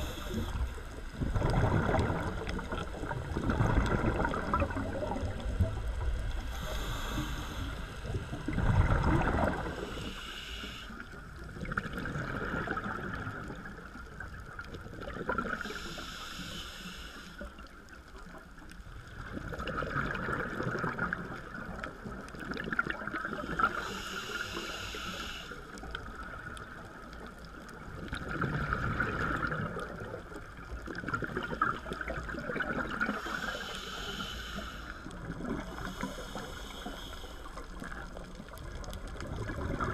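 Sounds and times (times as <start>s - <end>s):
regulator hissing inhale: 0.0s - 1.0s, 6.2s - 8.5s, 9.6s - 11.2s, 15.6s - 17.7s, 23.4s - 25.9s, 33.1s - 38.2s
exhaled bubbles gurgling: 0.0s - 16.1s, 17.6s - 39.9s.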